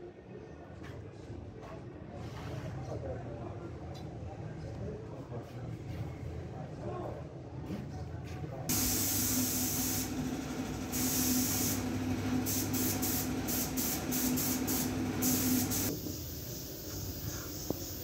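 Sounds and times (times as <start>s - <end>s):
loud hiss: 8.7s - 18.0s.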